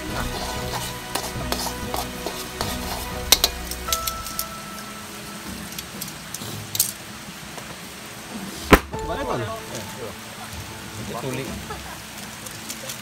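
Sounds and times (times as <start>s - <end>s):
onions sizzling in a wok: 0.0s - 13.0s
metal tongs clinking and scraping: 0.2s - 4.9s.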